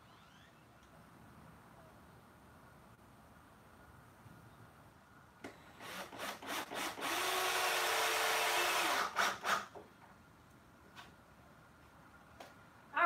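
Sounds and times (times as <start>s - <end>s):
cordless drill driving screw: 5.8s - 9.8s.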